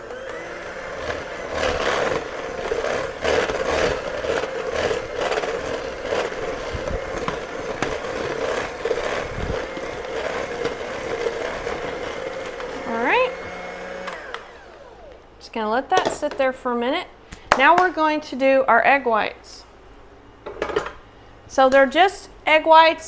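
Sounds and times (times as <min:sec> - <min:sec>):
electric hand mixer humming: 0:00.0 - 0:15.4.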